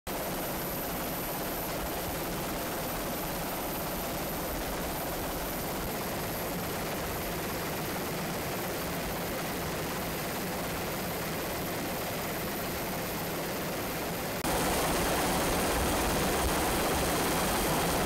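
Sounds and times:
aircraft cabin drone: 14.4 - 18.0.

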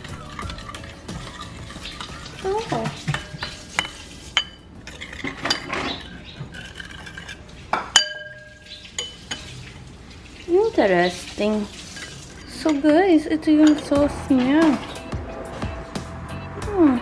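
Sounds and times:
spoon clinking against dish: 0.0 - 9.5, 11.9 - 14.0
spoon scraping in a dish: 0.0 - 9.5.

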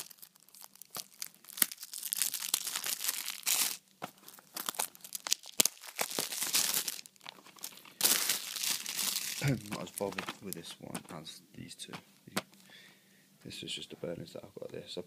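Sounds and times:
plastic wrap crinkling and tearing: 0.0 - 11.2.

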